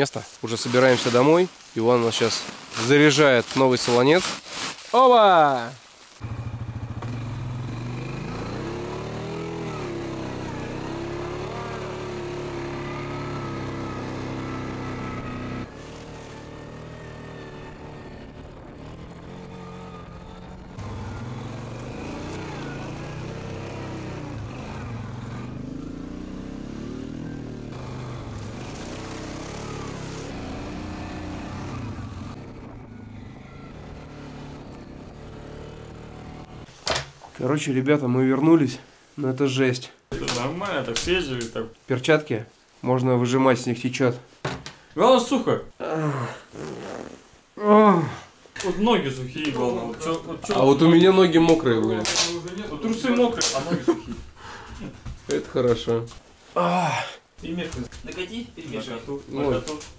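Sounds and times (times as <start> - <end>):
atv engine running under load: 6.2 - 36.7.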